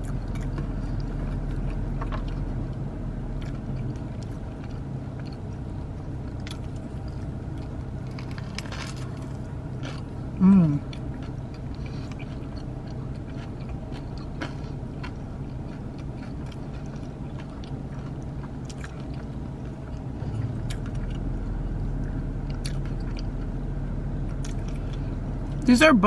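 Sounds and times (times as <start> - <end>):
chewing crispy food: 0.0 - 25.7
low hum: 0.0 - 26.0.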